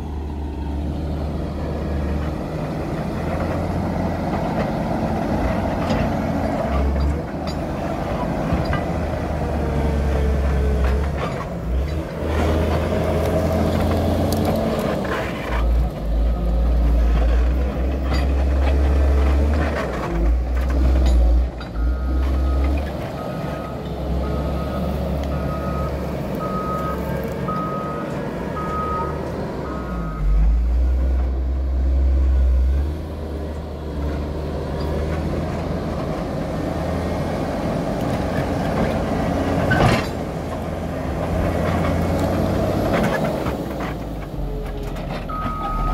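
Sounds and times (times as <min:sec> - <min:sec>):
diesel engine under load: 0:00.0 - 0:45.9
reversing alarm beeping: 0:21.8 - 0:30.5, 0:45.3 - 0:45.9.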